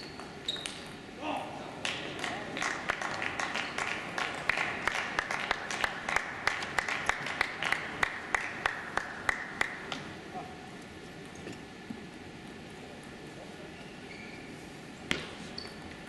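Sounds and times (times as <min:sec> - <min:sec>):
audience clapping in rhythm: 0:01.8 - 0:10.0.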